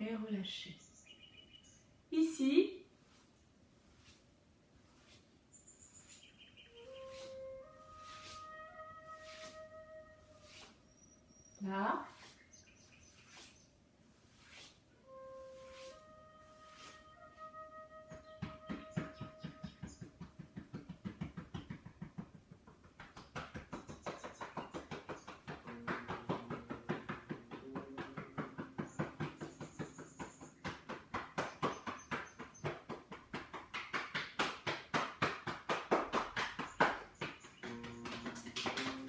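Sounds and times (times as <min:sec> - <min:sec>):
hands tapping body through clothing: 0:17.9 - 0:39.0.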